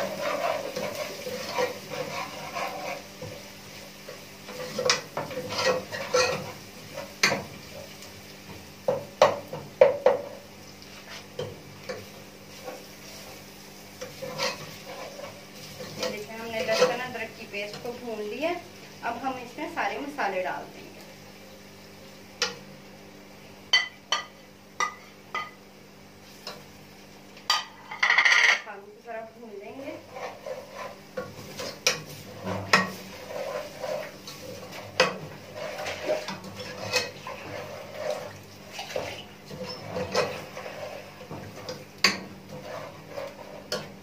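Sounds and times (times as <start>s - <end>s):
metal spoon scraping a pot: 0.0s - 3.1s, 4.5s - 6.6s, 14.0s - 17.1s, 29.8s - 43.9s.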